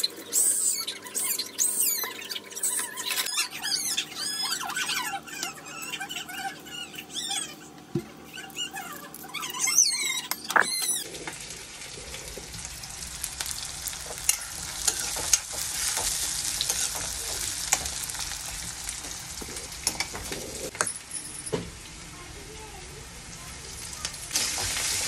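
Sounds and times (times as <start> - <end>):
high squeaky chirps: 0.0 - 11.0
onions sizzling in oil: 11.0 - 25.0
steel spatula scraping a pan: 14.3 - 17.1.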